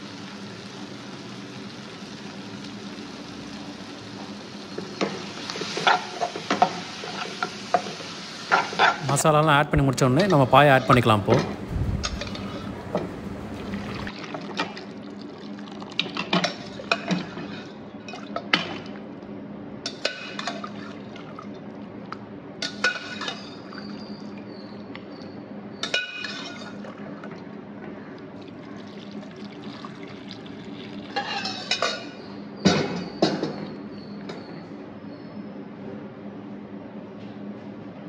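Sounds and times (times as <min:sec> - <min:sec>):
steady low hum: 0:09.0 - 0:14.1.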